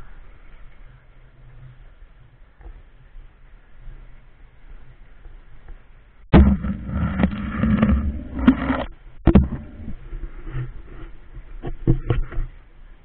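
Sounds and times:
rubbing rumble with sharp knocks: 0:06.3 - 0:12.7.

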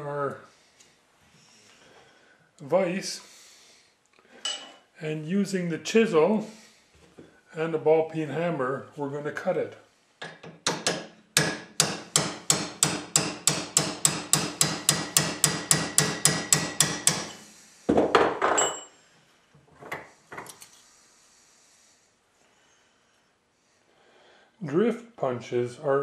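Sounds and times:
hammer striking chisel on metal: 0:10.2 - 0:17.4.

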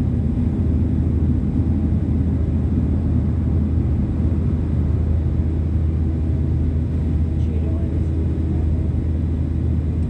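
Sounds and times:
jet engines rumbling in cabin: 0:00.0 - 0:10.0.

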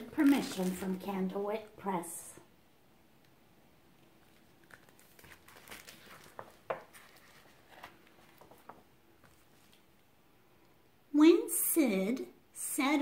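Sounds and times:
book pages rustling: 0:00.0 - 0:01.3, 0:04.0 - 0:10.0.

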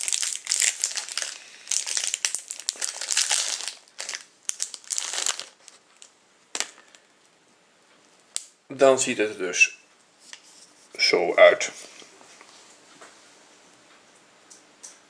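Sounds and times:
wrapper crackling: 0:00.0 - 0:07.0.

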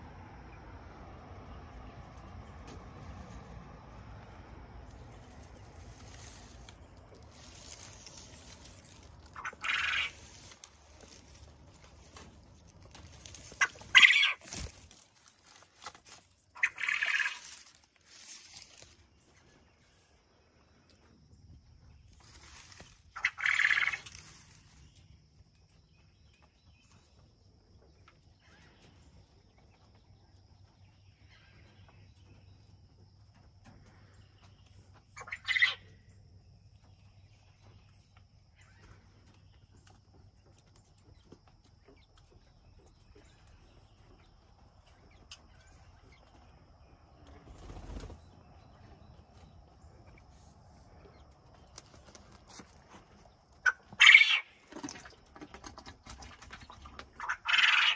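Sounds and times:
rustling: 0:04.8 - 0:19.4, 0:22.1 - 0:24.9
quail calling: 0:08.9 - 0:10.6, 0:13.4 - 0:14.7, 0:16.6 - 0:17.6, 0:23.2 - 0:24.2, 0:35.2 - 0:35.9, 0:53.6 - 0:54.6, 0:57.1 - 0:57.9.

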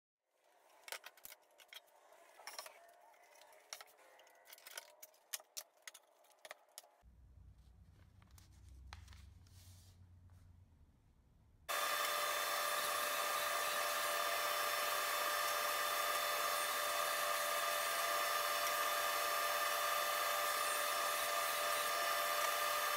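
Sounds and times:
woodshop machine running: 0:11.7 - 0:22.9.

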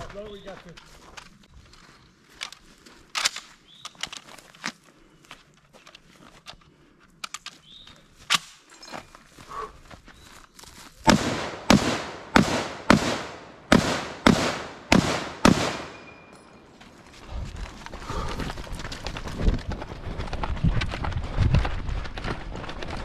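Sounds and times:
rifle handling clicks: 0:02.4 - 0:04.7
rifle shots: 0:11.1 - 0:16.3.

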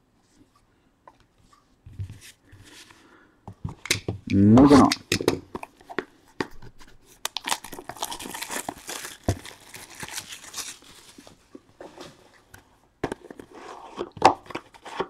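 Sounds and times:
wrapper tearing and crinkling: 0:07.2 - 0:11.4.

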